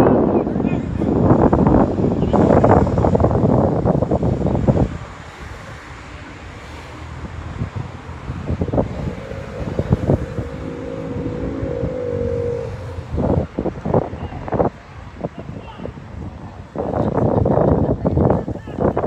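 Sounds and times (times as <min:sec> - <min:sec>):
wind buffeting microphone: 0:00.0 - 0:19.0
held wavering tone: 0:08.3 - 0:14.2.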